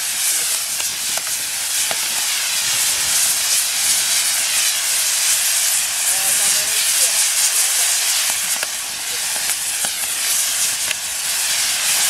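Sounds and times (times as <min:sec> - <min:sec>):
faint fireworks crackles: 0:00.0 - 0:12.0
fireworks wheel hissing: 0:00.0 - 0:12.0.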